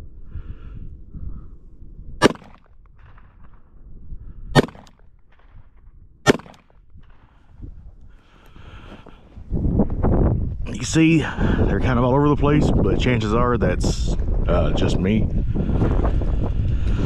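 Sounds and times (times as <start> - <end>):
wind rumble on microphone: 0.0 - 17.0
pistol shots: 2.2 - 3.3, 4.6 - 5.6, 6.2 - 6.7.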